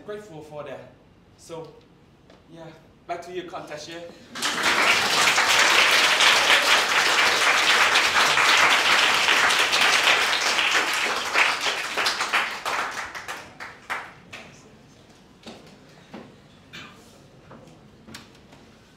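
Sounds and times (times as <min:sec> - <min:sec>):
audience applauding: 0:04.3 - 0:14.4.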